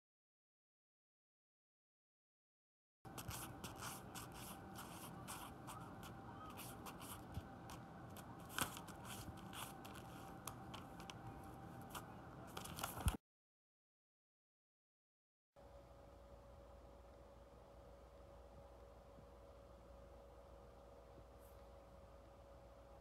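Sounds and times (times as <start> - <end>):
paper rustling and crinkling: 3.1 - 13.2.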